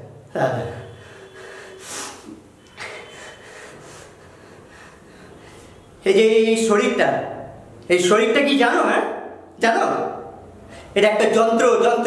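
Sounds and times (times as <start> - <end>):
man breathing noisily: 0.8 - 6.0.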